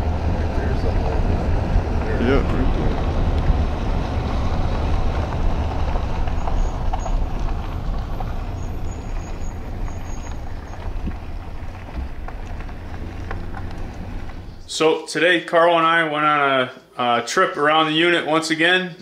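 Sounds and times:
vehicle road rumble: 0:00.0 - 0:15.0.

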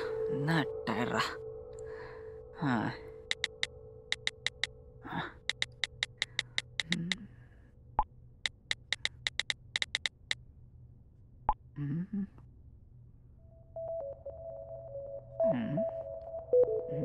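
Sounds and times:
phone keyboard tap clicks: 0:03.3 - 0:04.7, 0:05.4 - 0:07.1, 0:08.5 - 0:10.4.

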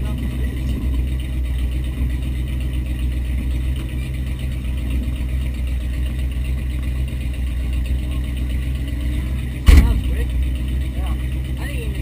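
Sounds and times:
engine running steadily: 0:00.0 - 0:12.0.

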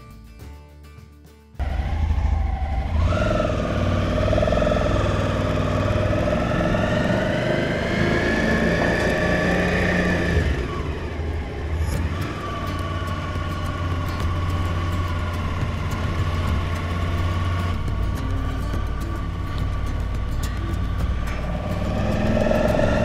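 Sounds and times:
motorcycle engine accelerating: 0:01.6 - 0:23.0.

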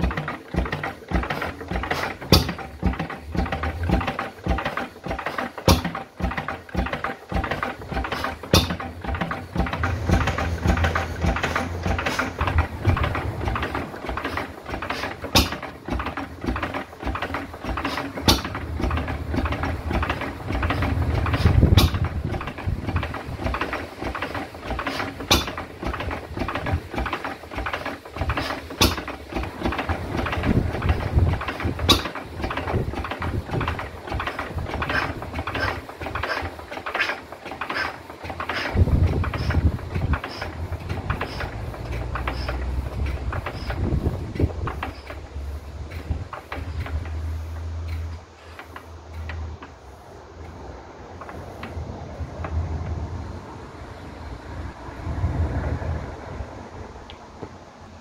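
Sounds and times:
engine sharp crack: 0:00.0 - 0:53.5
stationary engine clattering: 0:00.0 - 0:57.6
heavy low engine rumble: 0:00.0 - 0:58.0.

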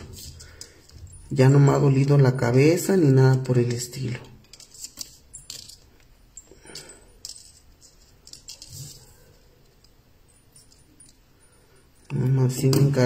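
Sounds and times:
wire clicking and scraping: 0:03.1 - 0:13.0.

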